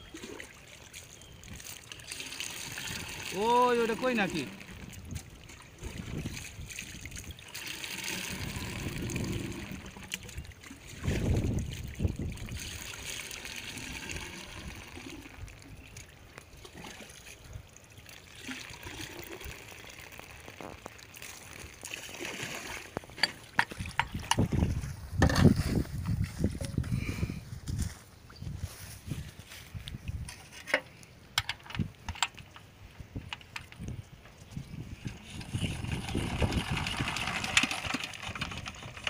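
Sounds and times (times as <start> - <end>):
water pouring and splashing: 0.0 - 27.2, 33.2 - 39.0.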